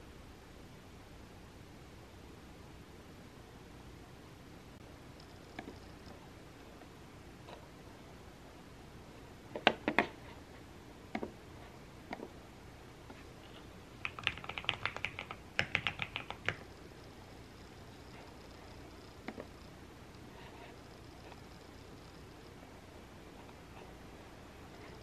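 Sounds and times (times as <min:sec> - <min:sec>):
typing on a keyboard: 0:14.0 - 0:16.7
computer mouse clicks: 0:14.0 - 0:16.8.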